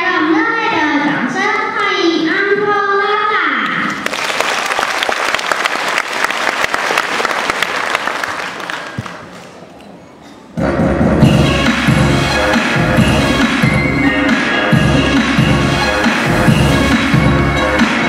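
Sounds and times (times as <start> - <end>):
audience applauding: 3.9 - 9.4.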